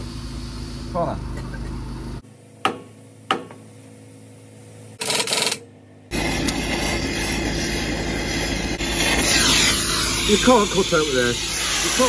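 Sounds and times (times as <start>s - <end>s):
gas cutting torch hissing: 6.1s - 12.0s.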